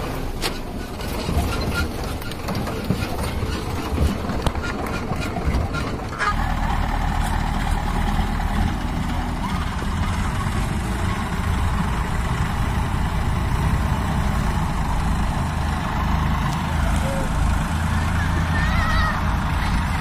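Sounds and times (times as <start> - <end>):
diesel engines running: 0.0 - 20.0
engine knocks: 0.0 - 20.0.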